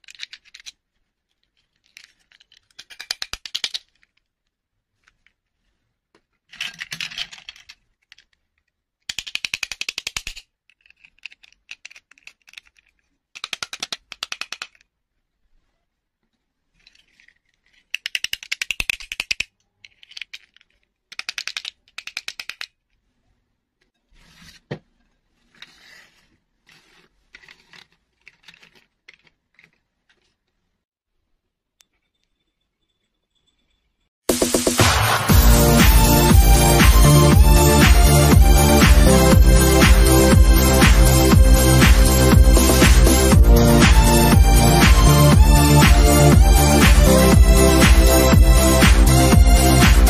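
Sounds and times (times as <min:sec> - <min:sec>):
plastic toys clicking and rattling: 0:00.0 - 0:05.4, 0:06.2 - 0:15.0, 0:16.7 - 0:23.0, 0:25.5 - 0:30.6.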